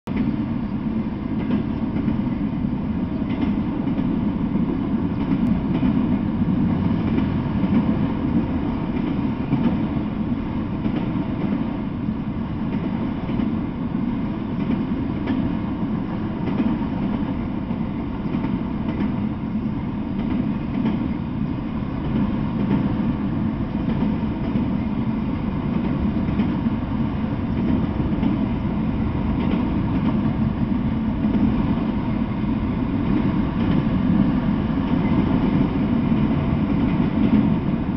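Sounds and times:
freight train rolling past: 0.1s - 37.9s
wheels clicking on rail: 16.2s - 17.4s, 18.2s - 19.3s.

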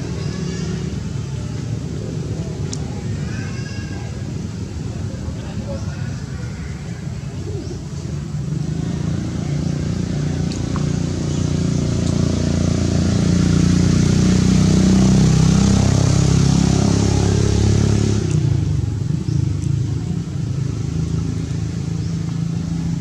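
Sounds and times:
vehicle engine running: 7.8s - 23.0s.

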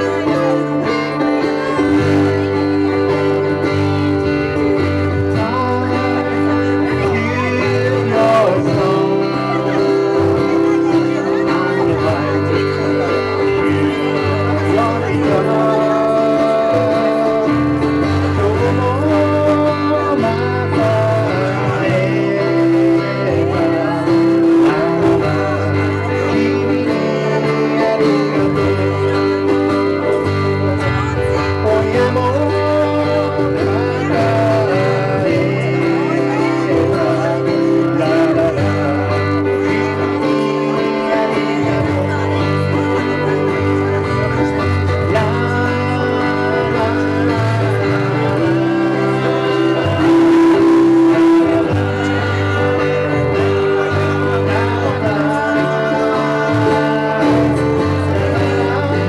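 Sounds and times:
acoustic guitars strumming: 0.0s - 59.0s
men singing: 0.0s - 59.0s.

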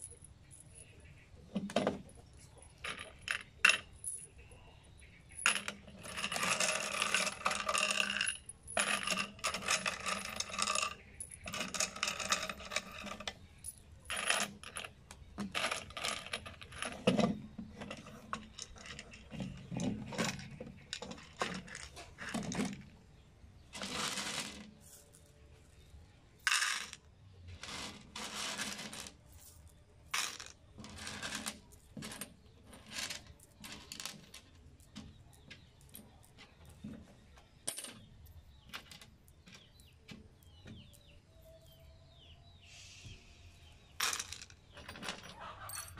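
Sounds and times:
screws clinking into plastic cups: 5.2s - 22.9s.

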